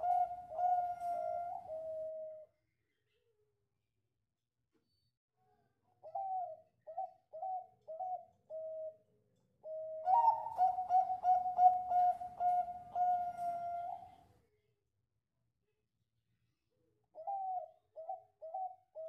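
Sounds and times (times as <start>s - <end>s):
dove cooing: 0.0s - 2.5s, 6.0s - 9.0s, 9.6s - 14.2s, 17.2s - 19.0s.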